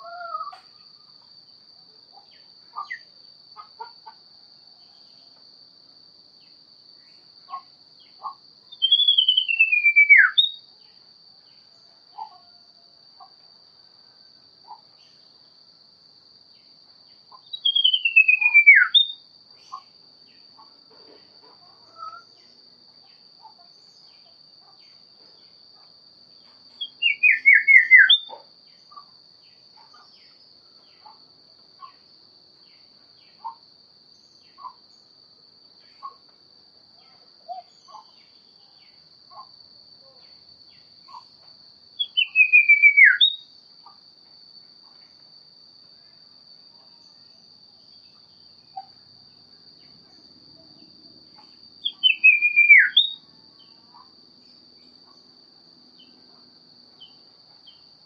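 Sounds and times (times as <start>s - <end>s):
bird whistling song: 8.7s - 10.6s, 17.5s - 19.2s, 26.8s - 28.3s, 42.0s - 43.5s, 51.8s - 53.2s.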